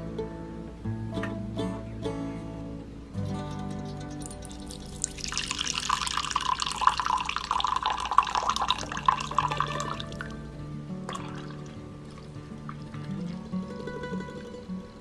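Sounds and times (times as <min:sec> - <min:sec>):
soft background music: 0:00.0 - 0:15.0
coffee pouring into cup: 0:04.2 - 0:10.4, 0:11.1 - 0:13.6.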